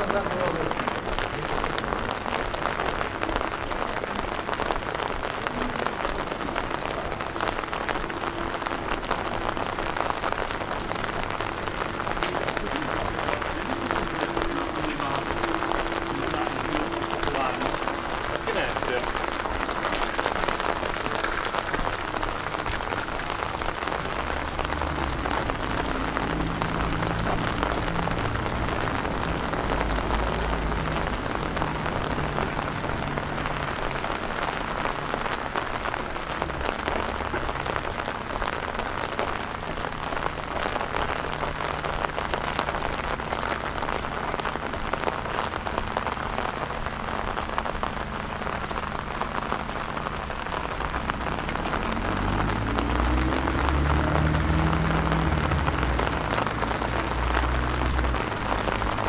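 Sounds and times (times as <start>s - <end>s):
steady rain falling: 0.0s - 59.0s
low hum: 11.4s - 21.2s.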